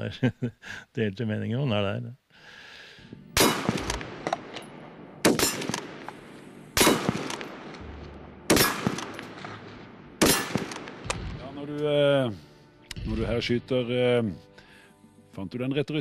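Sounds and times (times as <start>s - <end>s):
rifle shots: 3.4s - 11.4s.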